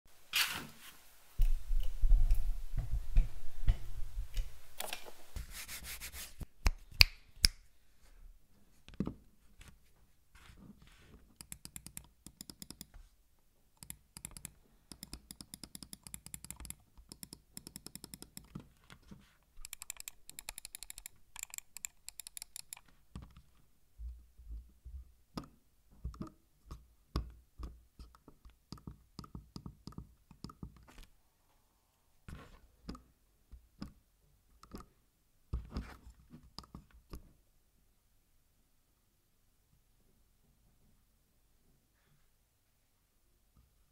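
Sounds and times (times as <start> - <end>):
scroll wheel ticking: 11.4 - 12.9, 13.8 - 18.6, 19.6 - 22.8.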